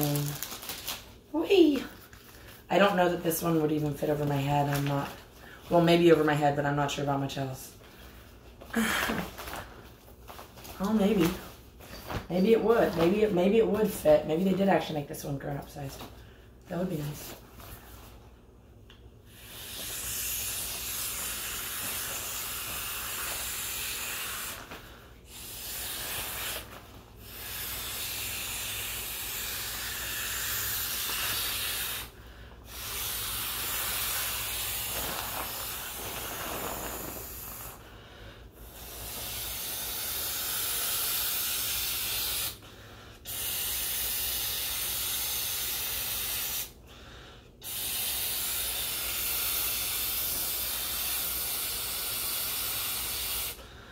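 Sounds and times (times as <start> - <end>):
breath blown into inflatable: 19.3 - 42.6, 47.6 - 53.6.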